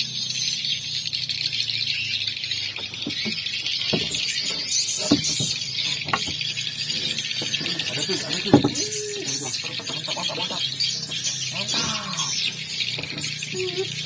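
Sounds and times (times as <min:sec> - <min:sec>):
fishing rods and reels knocking: 0:02.6 - 0:09.5, 0:10.4 - 0:14.0.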